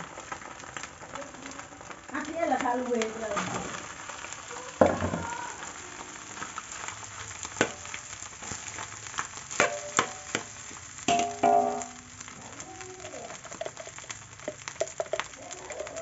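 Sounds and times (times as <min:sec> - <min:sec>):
rice sizzling in a wok: 0:00.0 - 0:16.0
wok ringing: 0:09.6 - 0:10.5, 0:11.1 - 0:16.0
metal spatula scraping and knocking: 0:11.1 - 0:12.1.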